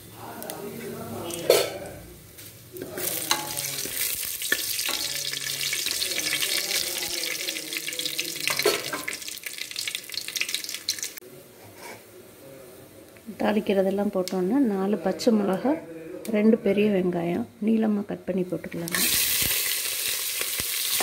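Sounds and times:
spices sizzling in hot oil: 0:02.4 - 0:11.2, 0:18.7 - 0:21.0
spatula stirring: 0:02.8 - 0:11.1.

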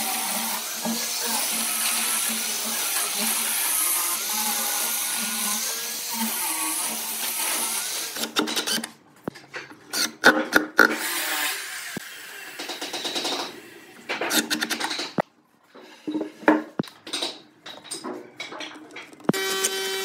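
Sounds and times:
angle grinder sanding wood: 0:00.0 - 0:08.2
sharp knocks and clatters: 0:12.6 - 0:15.3, 0:16.0 - 0:19.4.

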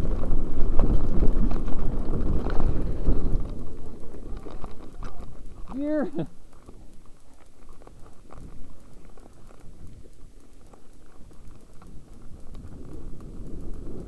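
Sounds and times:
bike tyres on gravel: 0:00.0 - 0:14.0.

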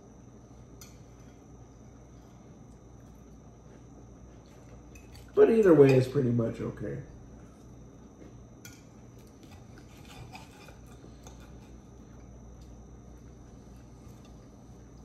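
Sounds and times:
cutlery scraping plates: 0:08.6 - 0:11.6.

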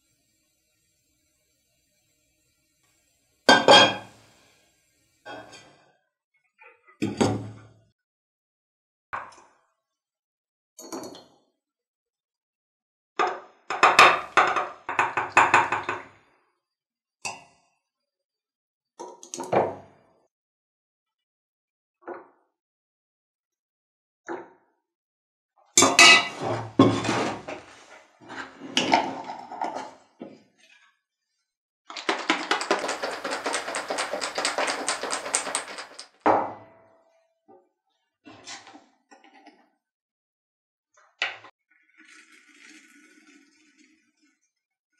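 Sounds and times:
glass jar contents rattling: 0:31.9 - 0:36.2.

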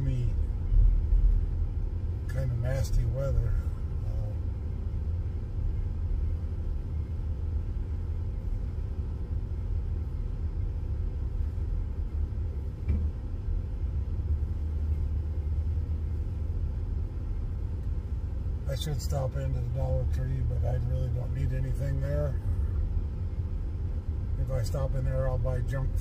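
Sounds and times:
car engine and road rumble: 0:00.0 - 0:26.0
short thump: 0:12.8 - 0:13.2.

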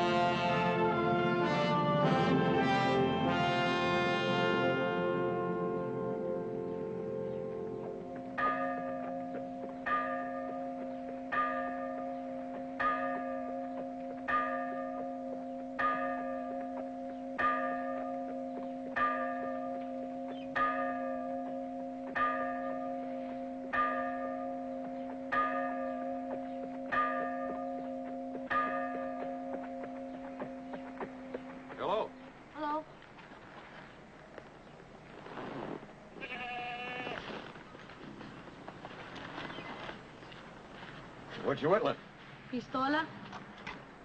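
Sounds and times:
brass music: 0:00.0 - 0:08.0
church bell tolling: 0:00.0 - 0:32.4.

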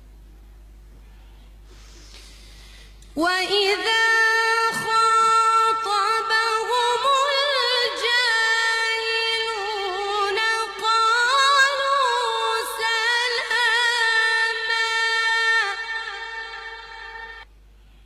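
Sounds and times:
woman reciting melodically: 0:03.0 - 0:17.4.

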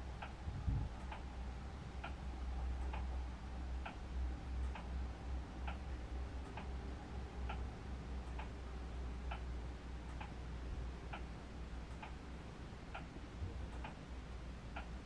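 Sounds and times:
low steady hum: 0:00.0 - 0:15.0
clock ticking: 0:02.8 - 0:03.1, 0:04.6 - 0:05.0, 0:08.2 - 0:08.5, 0:09.3 - 0:10.4, 0:11.1 - 0:12.2, 0:13.7 - 0:14.1.

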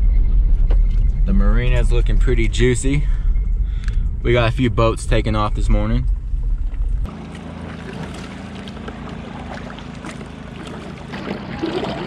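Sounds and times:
heavy low rumble: 0:00.0 - 0:07.2
motorboat engines droning: 0:06.2 - 0:12.0.

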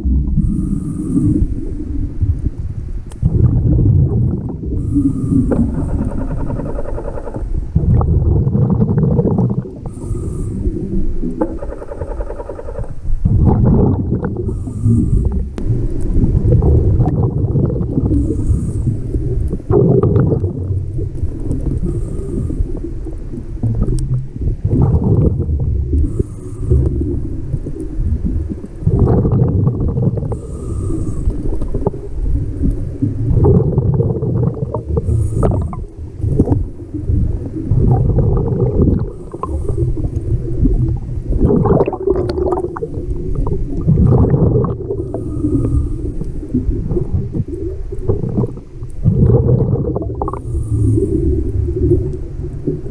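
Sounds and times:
exhaled air bubbling underwater: 0:00.0 - 0:52.9
regulator hissing on inhale: 0:00.4 - 0:01.8, 0:04.7 - 0:07.5, 0:09.8 - 0:13.0, 0:14.4 - 0:15.7, 0:18.0 - 0:19.6, 0:21.6 - 0:23.2, 0:25.9 - 0:27.9, 0:30.2 - 0:32.9, 0:34.8 - 0:36.1, 0:39.0 - 0:40.6, 0:44.9 - 0:46.8, 0:50.3 - 0:52.0.

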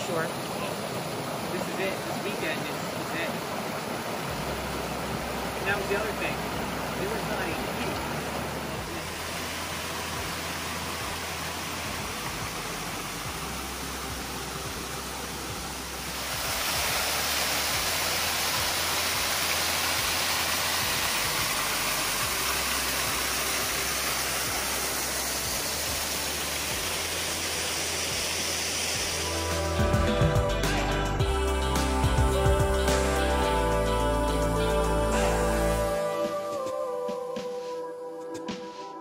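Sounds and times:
waterfall rushing: 0:00.0 - 0:37.1.

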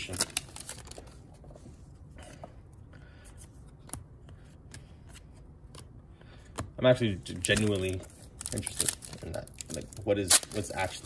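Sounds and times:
trading cards flipping: 0:03.3 - 0:06.7, 0:07.4 - 0:10.7.

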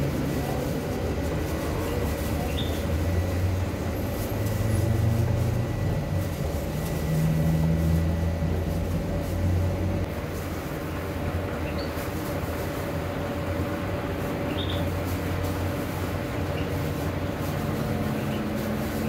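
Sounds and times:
low mechanical rumble: 0:00.0 - 0:19.0.

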